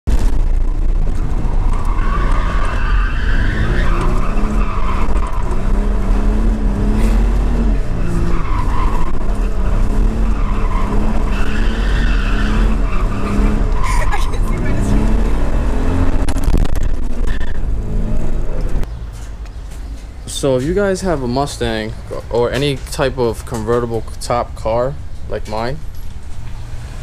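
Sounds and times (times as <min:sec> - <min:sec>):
car engine revving: 0:00.1 - 0:18.9
tyres squealing: 0:01.5 - 0:18.8.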